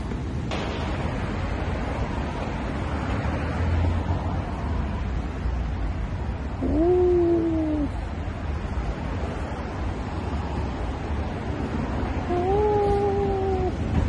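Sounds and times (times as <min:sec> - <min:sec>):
low traffic rumble: 0:00.0 - 0:14.0
man exclaiming oh: 0:06.6 - 0:08.0, 0:12.3 - 0:13.8.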